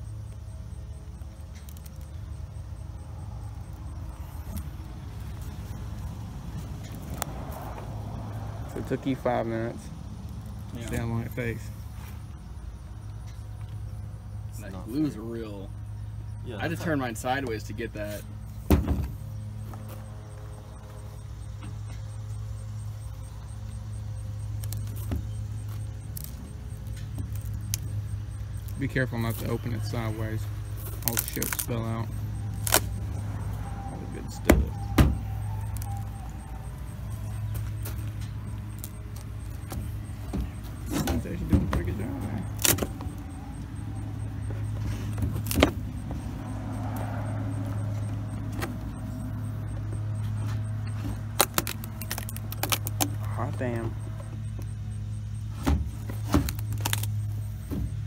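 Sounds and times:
low engine hum: 0:00.0 - 0:58.0
wooden crate lid being pried: 0:55.6 - 0:57.1.

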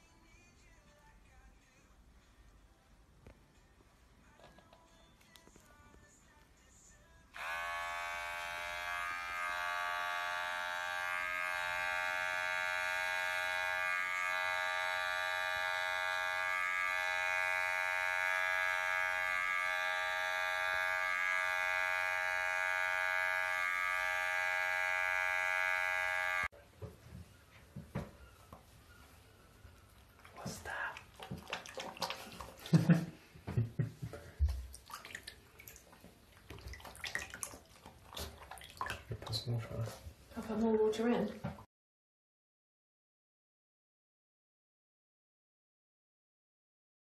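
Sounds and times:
electric hair clipper buzzing: 0:07.3 - 0:26.5.

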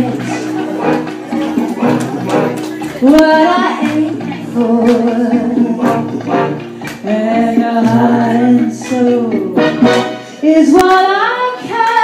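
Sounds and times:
musical accompaniment: 0:00.0 - 0:12.0
woman singing into microphone: 0:02.9 - 0:06.3, 0:06.9 - 0:12.0.

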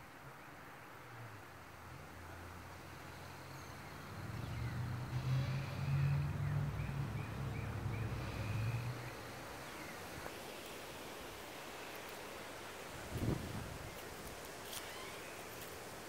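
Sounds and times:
vehicle engine passing by: 0:02.2 - 0:09.5.

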